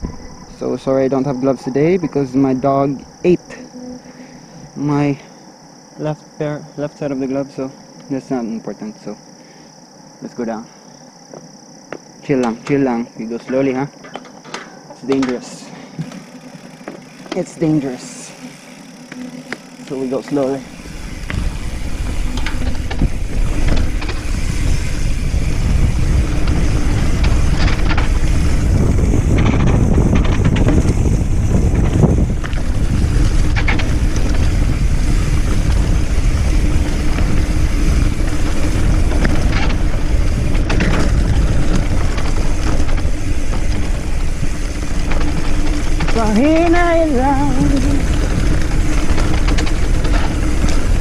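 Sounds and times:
bike knocks and rattles: 0:11.3 - 0:51.0
tyres rolling over rough ground: 0:11.3 - 0:51.0
wind rushing over microphone: 0:20.5 - 0:51.0.

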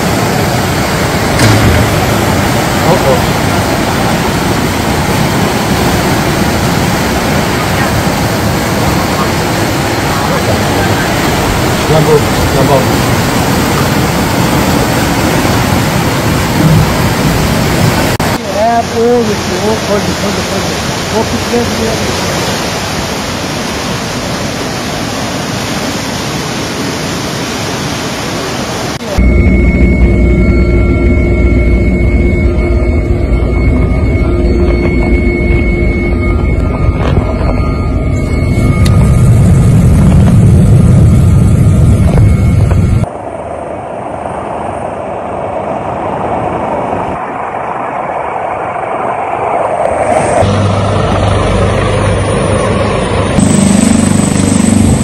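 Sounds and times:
helicopter from inside cabin: 0:00.0 - 0:21.7, 0:29.0 - 0:55.0
floodwater rushing: 0:00.0 - 0:29.2.

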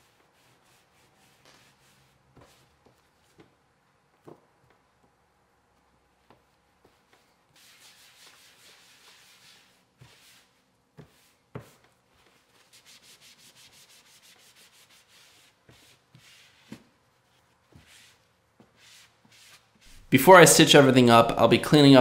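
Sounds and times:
gloved hands rubbing leather: 0:05.8 - 0:20.1.

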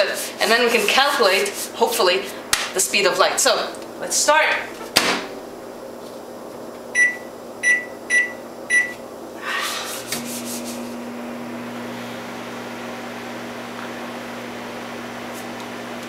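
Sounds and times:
microwave humming: 0:02.3 - 0:16.0
microwave keypad beeping: 0:06.9 - 0:09.0.

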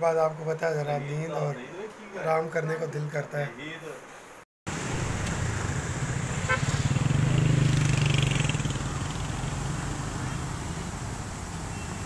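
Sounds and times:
vehicle engine hum: 0:04.7 - 0:12.0
water rushing under sluice gate: 0:04.7 - 0:12.0.

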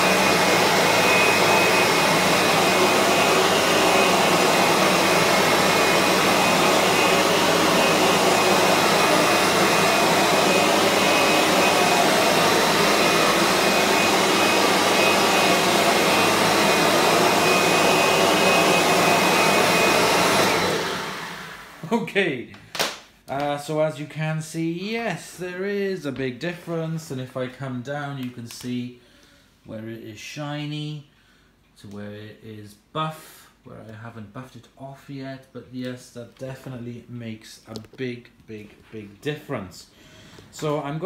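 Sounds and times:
vacuum motor drone with whine: 0:00.0 - 0:21.8.

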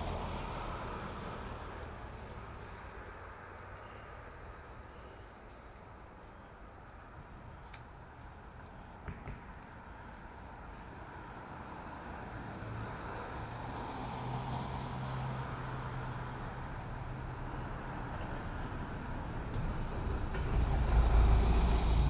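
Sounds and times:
vehicle engine approaching: 0:00.0 - 0:05.0, 0:09.8 - 0:22.0.

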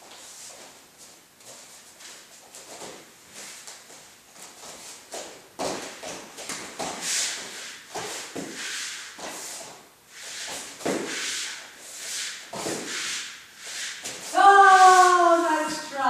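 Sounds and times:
bare feet thudding on foam mats: 0:01.4 - 0:09.8, 0:10.4 - 0:11.6, 0:12.4 - 0:13.2, 0:14.0 - 0:15.1
pool noodle swishing: 0:06.6 - 0:16.0.

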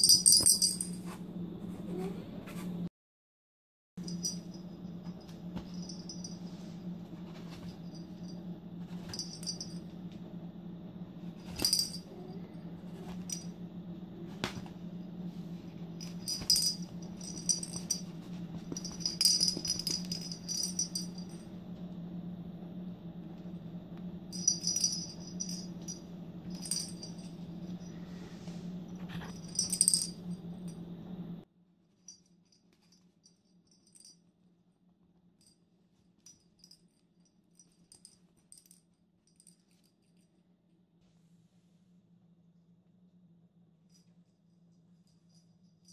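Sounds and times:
jingle bell toy jingling: 0:00.0 - 0:01.0, 0:04.1 - 0:04.6, 0:09.0 - 0:09.8, 0:16.0 - 0:18.1, 0:18.7 - 0:21.4, 0:24.3 - 0:27.4, 0:29.1 - 0:30.2
steady low hum: 0:04.0 - 0:45.9.

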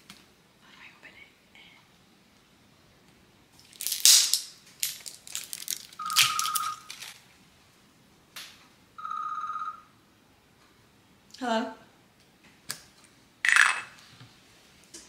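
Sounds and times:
plastic wrap tearing and crinkling: 0:03.6 - 0:07.2
rustling: 0:03.6 - 0:07.3.

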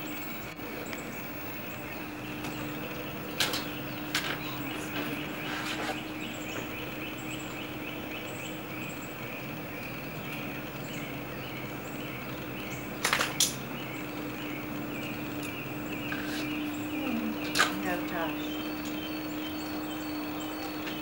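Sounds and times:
steady low hum: 0:00.0 - 0:21.0
sharp clicks: 0:02.4 - 0:05.4, 0:12.4 - 0:13.8, 0:17.4 - 0:19.1.

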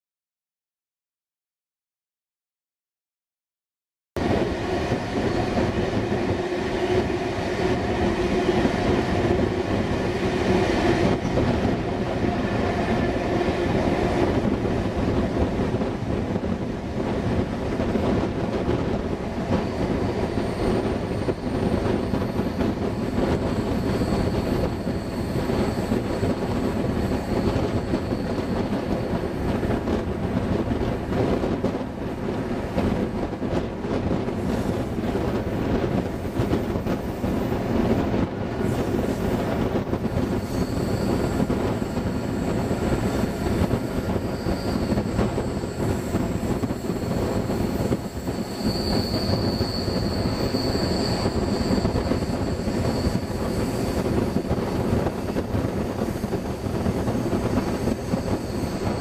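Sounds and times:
train wheels rumbling on rails: 0:04.2 - 0:59.0
wheels squealing: 0:46.8 - 0:54.1.

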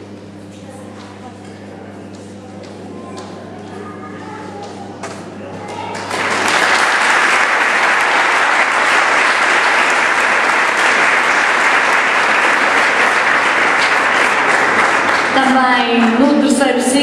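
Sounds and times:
crowd applauding: 0:05.7 - 0:16.2.

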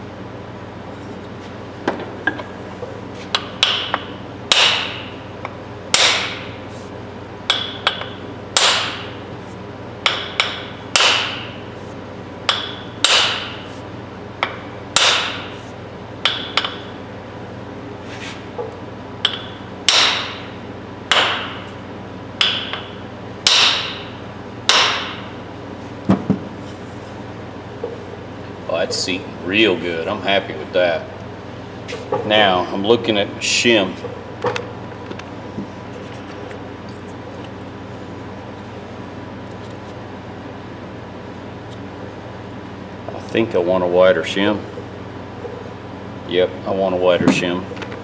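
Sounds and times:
hammer striking wooden handle: 0:03.4 - 0:05.0, 0:06.0 - 0:06.4, 0:07.5 - 0:09.0, 0:10.1 - 0:11.5, 0:12.5 - 0:13.6, 0:14.4 - 0:15.5, 0:19.2 - 0:20.4, 0:21.1 - 0:21.6, 0:22.4 - 0:24.1, 0:24.7 - 0:25.2.

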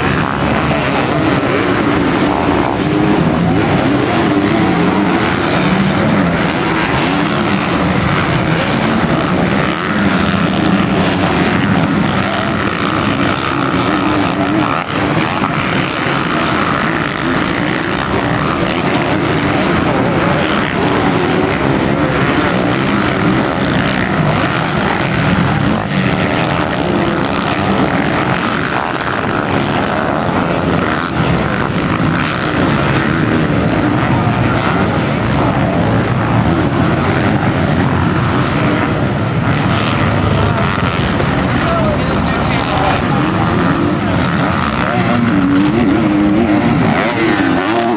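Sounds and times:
motocross bikes revving: 0:00.0 - 0:47.9.

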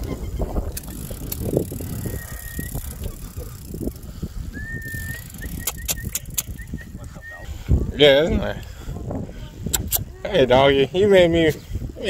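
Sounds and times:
wind and tyre rumble: 0:00.0 - 0:12.0
sharp bicycle clicks: 0:00.6 - 0:04.1, 0:04.8 - 0:06.8
thin high squeal: 0:01.8 - 0:03.4.

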